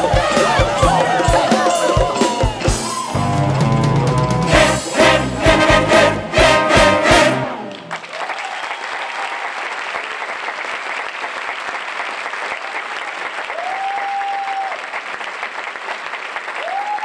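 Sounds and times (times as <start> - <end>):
band chord: 2.7 - 8.0
audience applauding: 6.4 - 17.0.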